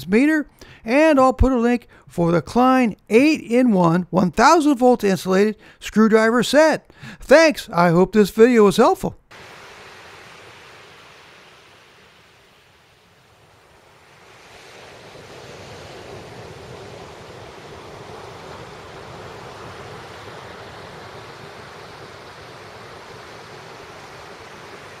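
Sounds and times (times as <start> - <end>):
ocean surf breaking on sand: 9.3 - 25.0.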